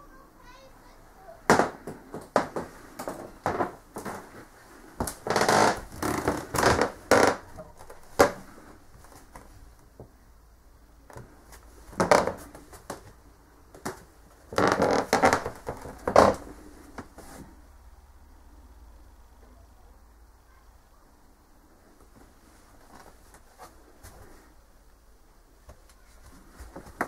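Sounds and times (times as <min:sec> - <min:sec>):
wooden creaks: 0:02.2 - 0:04.3, 0:05.0 - 0:08.5, 0:11.9 - 0:12.6, 0:13.9 - 0:16.5
rustling: 0:02.3 - 0:10.0, 0:11.1 - 0:17.7, 0:21.8 - 0:24.7, 0:25.6 - 0:27.0.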